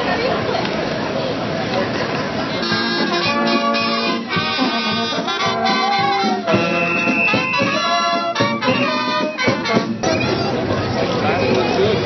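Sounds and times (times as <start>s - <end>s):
marching band brass tune: 2.6s - 11.0s
bass drum beats: 2.8s - 10.4s.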